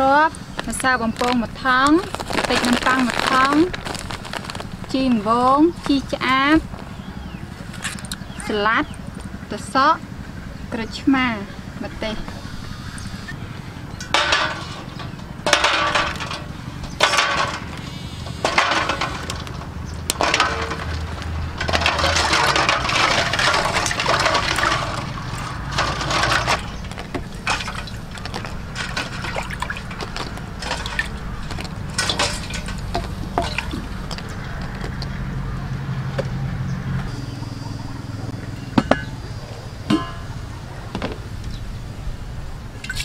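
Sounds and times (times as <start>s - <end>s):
water splashing in metal bowl: 18.5s - 34.1s, 42.8s - 43.0s.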